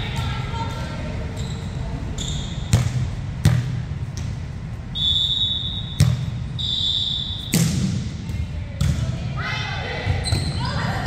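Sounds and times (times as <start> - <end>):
shoe squeaks: 1.3 - 2.7.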